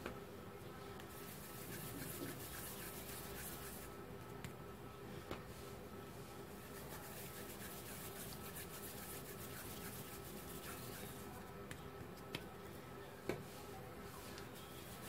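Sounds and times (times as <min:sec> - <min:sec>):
dough rubbed by hand: 0:01.0 - 0:04.0, 0:05.5 - 0:11.5, 0:13.4 - 0:15.0.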